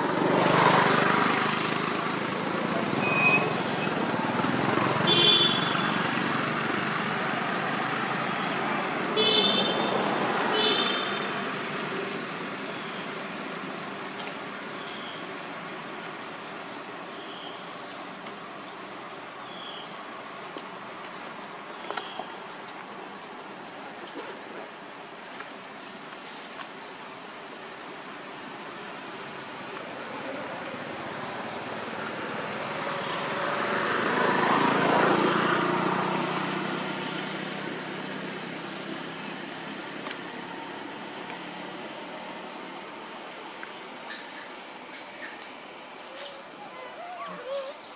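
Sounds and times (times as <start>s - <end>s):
vehicle passing by: 0.0s - 14.6s, 29.4s - 43.0s
insects buzzing and chirping: 0.0s - 47.9s.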